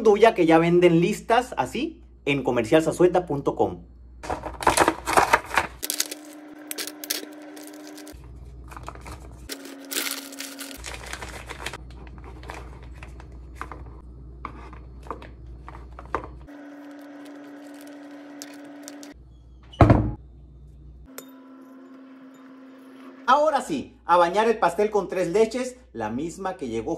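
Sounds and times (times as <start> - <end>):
plastic packaging crinkling: 4.6 - 13.6, 16.5 - 19.2.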